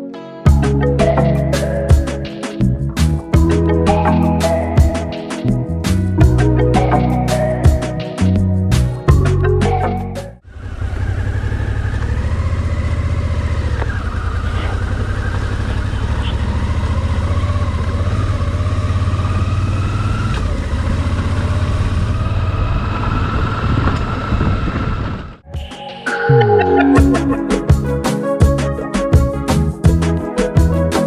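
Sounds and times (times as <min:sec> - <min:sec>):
motorcycle engine running: 0:10.4 - 0:25.4
wind and road noise: 0:10.5 - 0:25.4.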